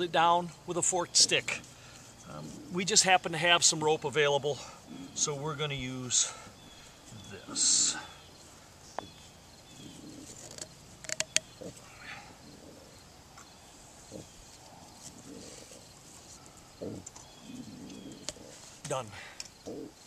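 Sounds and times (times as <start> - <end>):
quiet outdoor background: 0.0 - 20.0
rope handling sounds: 10.0 - 11.9.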